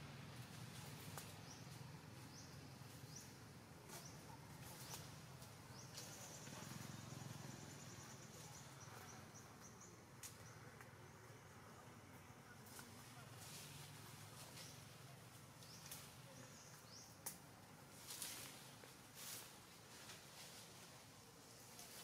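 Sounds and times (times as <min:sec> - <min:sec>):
birds and insects chirping: 0:00.3 - 0:22.0
faint clicks: 0:17.1 - 0:17.5.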